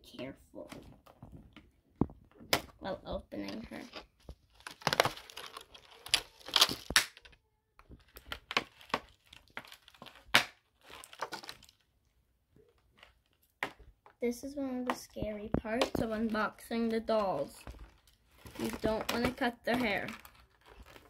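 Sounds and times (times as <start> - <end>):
plastic packaging crinkling: 3.4 - 11.9, 15.6 - 21.0.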